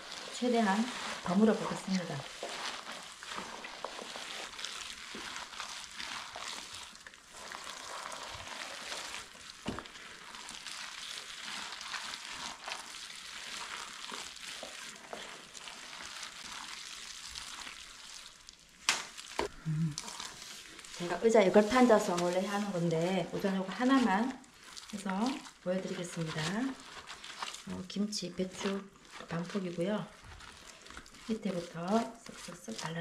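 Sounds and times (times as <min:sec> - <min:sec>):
gloved hand squishing wet paste: 0:00.0 - 0:33.0.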